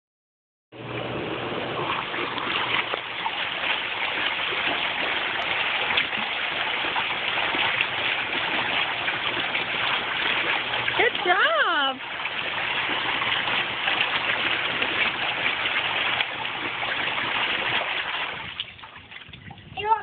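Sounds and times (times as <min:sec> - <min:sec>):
hot tub water bubbling: 0:00.8 - 0:20.0.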